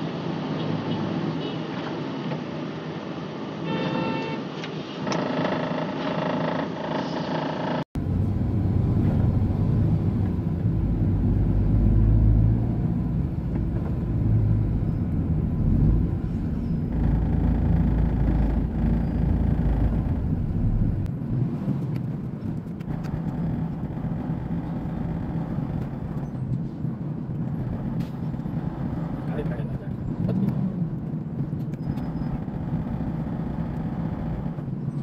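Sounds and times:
diesel truck engine rumbling: 8.0 - 21.5, 22.4 - 35.0.

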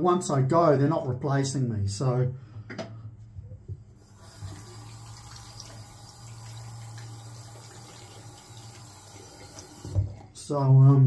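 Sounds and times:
tap water running into sink: 4.0 - 10.3.

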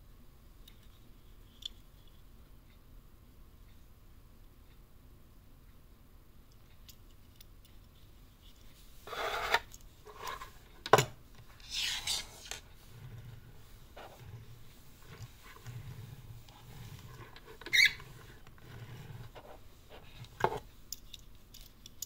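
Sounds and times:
plastic case rubbing and scraping: 9.0 - 10.6, 11.6 - 20.6.

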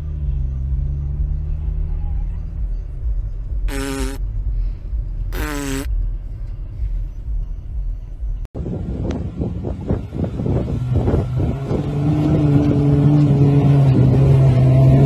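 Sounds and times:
short pitched sounds: 3.7 - 4.2.

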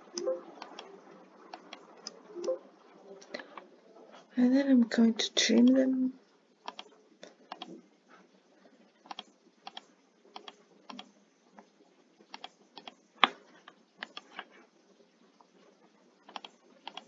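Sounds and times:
keyboard and mouse clicks: 0.1 - 0.9, 1.5 - 2.6, 6.6 - 7.8, 9.0 - 11.1, 12.3 - 14.5, 16.2 - 17.0.

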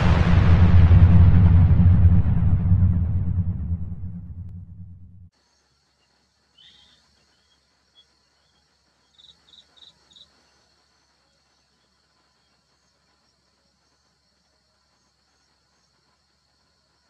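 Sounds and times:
high insect drone: 5.4 - 17.0
high bird chirps: 6.0 - 10.3.

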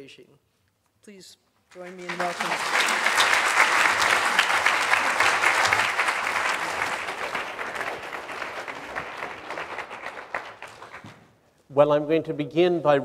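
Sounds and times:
audience applauding: 1.7 - 11.3.

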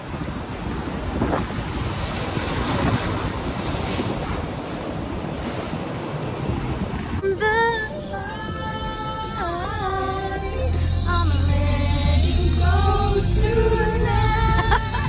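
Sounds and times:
wind buffeting microphone: 0.0 - 7.7
ocean surf: 0.0 - 15.0
song with sung voice: 7.2 - 15.0.

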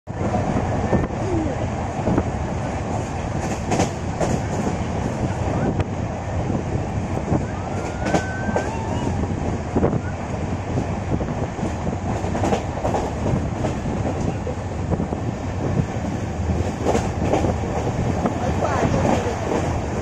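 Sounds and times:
train running rumble: 0.1 - 20.0
wheels clacking over rail joints: 2.0 - 5.3, 10.7 - 15.1, 15.7 - 20.0.

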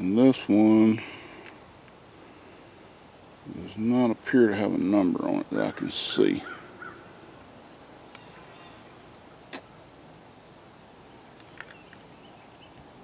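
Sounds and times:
high-pitched insect drone: 0.0 - 13.0
sharp click: 9.5 - 9.7.

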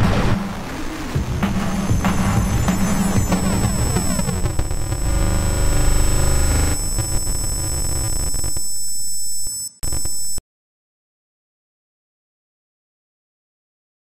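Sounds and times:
harsh electronic music: 1.0 - 9.2, 9.8 - 10.4
electronic buzz with high whistling: 1.2 - 10.4.

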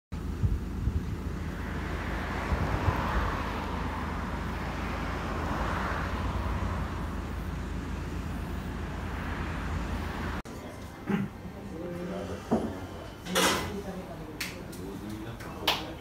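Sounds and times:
wind rumble on microphone: 0.2 - 4.2
vehicles passing by: 0.2 - 13.2.

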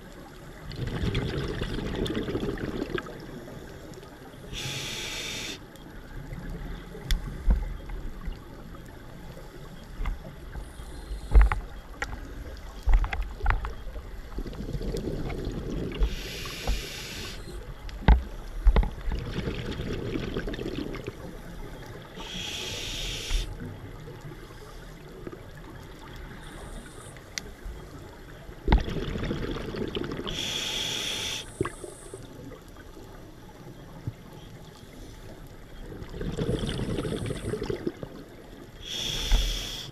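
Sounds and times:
gurgling exhaled bubbles: 0.6 - 3.5, 14.3 - 17.6, 19.0 - 21.3, 28.6 - 30.6, 35.8 - 39.8
hissing regulator inhalations: 4.5 - 5.6, 16.0 - 17.6, 22.2 - 23.5, 30.3 - 32.2, 38.8 - 39.9.

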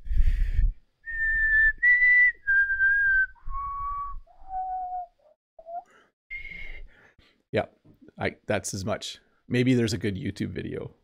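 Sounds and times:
breath noise on microphone: 0.0 - 0.9
man whistling: 1.0 - 6.8.

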